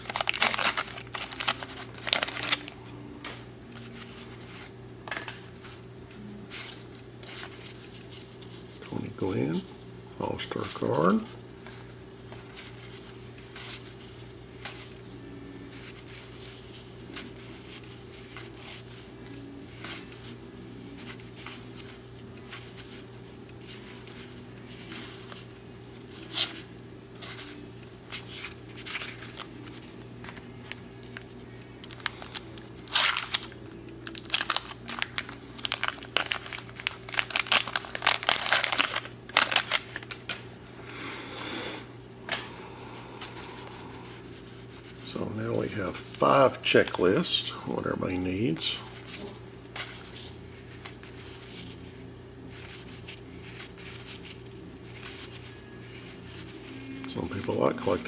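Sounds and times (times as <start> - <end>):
trading cards shuffling: 0.0 - 2.7, 11.6 - 40.4, 48.8 - 58.0
steady low hum: 0.0 - 58.0.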